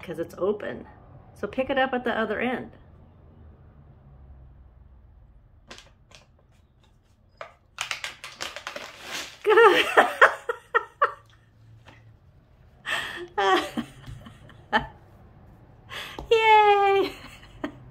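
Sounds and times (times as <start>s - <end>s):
plastic bag crinkling: 7.3s - 9.8s
dry treats rattling onto floor: 7.7s - 9.5s
woman laughing: 9.4s - 11.4s, 12.9s - 15.0s, 15.9s - 17.9s.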